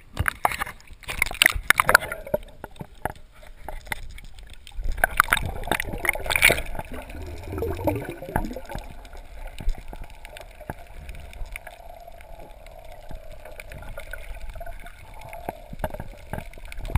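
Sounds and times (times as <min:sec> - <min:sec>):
water gurgling underwater: 0:01.4 - 0:03.0, 0:04.6 - 0:16.9.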